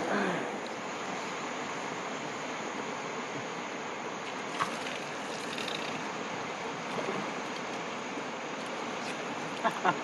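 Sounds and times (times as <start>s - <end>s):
river water rushing: 0.0s - 10.0s.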